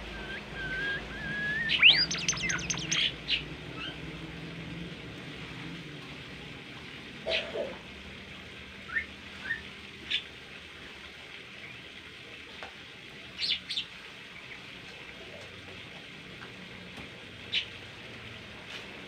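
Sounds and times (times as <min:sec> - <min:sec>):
songbird chirping: 0:00.0 - 0:03.4.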